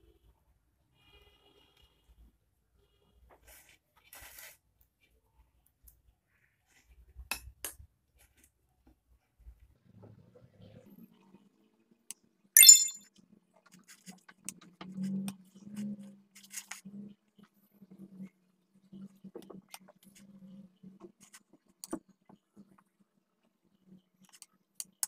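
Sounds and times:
knife clinking on plate: 12.6s - 13.0s.

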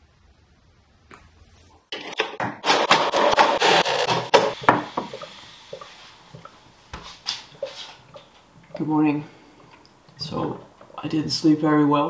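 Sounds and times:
hot water pumping into glass: 3.6s - 8.8s.

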